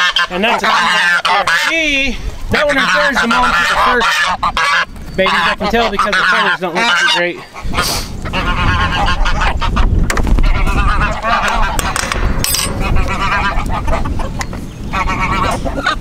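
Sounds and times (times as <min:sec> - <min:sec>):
geese honking: 0:00.0 - 0:16.0
metal gate latch clinking: 0:11.8 - 0:13.1
low rumble: 0:12.0 - 0:15.5.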